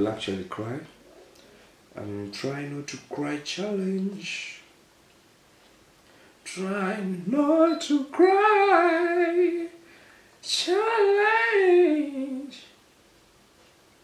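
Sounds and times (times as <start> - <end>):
man singing wavering phrases: 1.9 - 4.7, 6.4 - 9.8, 10.4 - 12.8.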